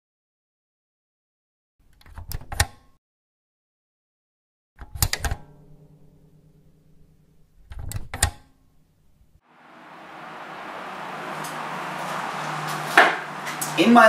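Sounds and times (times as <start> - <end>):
low ringing chord: 5.5 - 7.6, 8.7 - 14.0.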